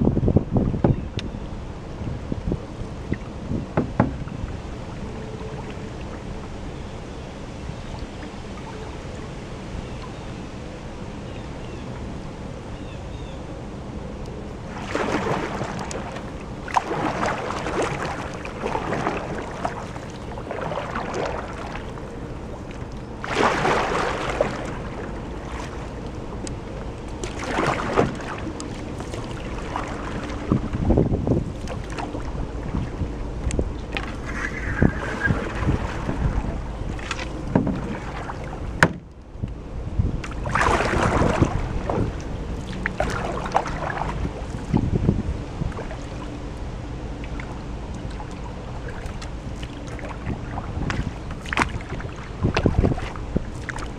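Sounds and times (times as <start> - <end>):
wind on microphone: 0.0 - 53.9
paddle strokes splashing: 14.6 - 39.4, 40.1 - 46.4, 47.2 - 53.9.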